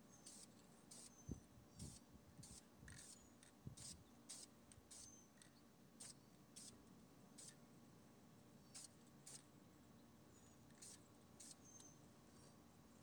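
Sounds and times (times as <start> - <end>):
spray-paint can hissing: 0.3 - 1.1, 8.8 - 9.4.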